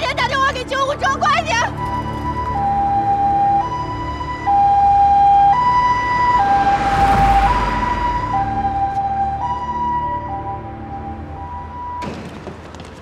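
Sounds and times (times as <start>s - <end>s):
ambulance two-tone siren: 1.2s - 12.2s
vehicle driving past: 4.2s - 10.8s.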